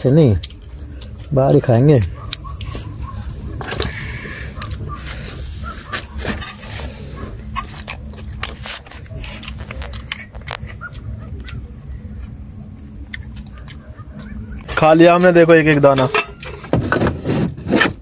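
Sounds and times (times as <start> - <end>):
cricket chirping: 0.0 - 18.0
metal spoons clinking on a pan: 16.0 - 16.4.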